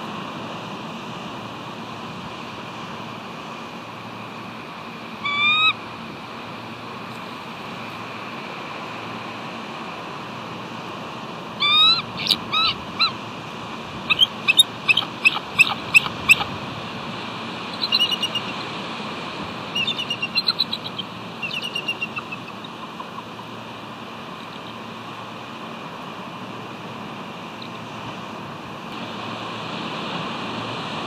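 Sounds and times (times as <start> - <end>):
eagles calling: 5.2 - 5.8, 11.6 - 13.3, 13.9 - 16.7, 17.6 - 18.8, 19.5 - 25.0.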